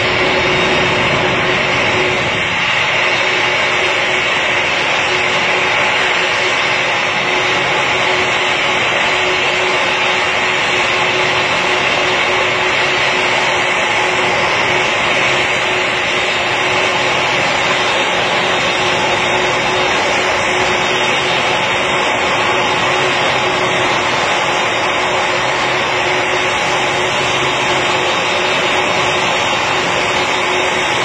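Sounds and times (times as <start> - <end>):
constant humming tone: 0.0 - 31.0
jet engines whine and rush: 0.0 - 31.0.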